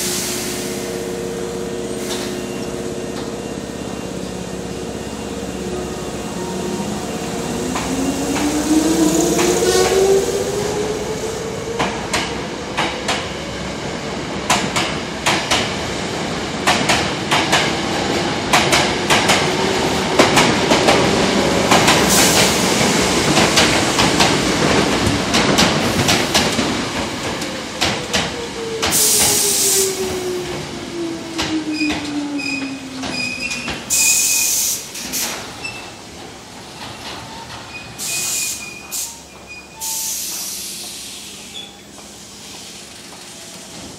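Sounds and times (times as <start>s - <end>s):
air hiss bursts: 28.9s - 30.0s, 33.9s - 35.5s, 38.0s - 39.2s, 39.8s - 41.5s.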